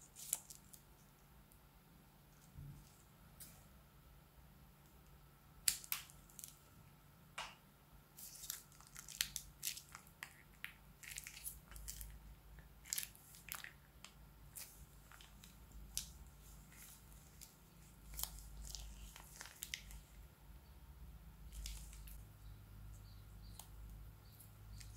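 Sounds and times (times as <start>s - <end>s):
slime sticky crackles and pops: 5.6s - 6.6s.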